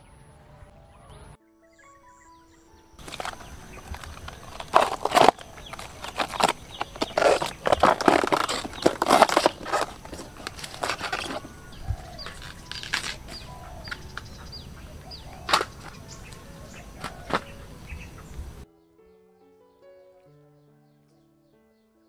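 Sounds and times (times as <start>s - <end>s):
plant stem tearing and snapping: 3.0s - 14.4s, 15.4s - 17.5s.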